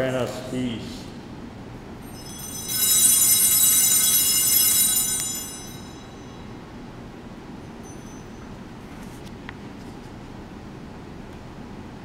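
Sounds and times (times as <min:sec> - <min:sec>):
altar bells ringing: 0:02.0 - 0:06.9, 0:07.6 - 0:08.8.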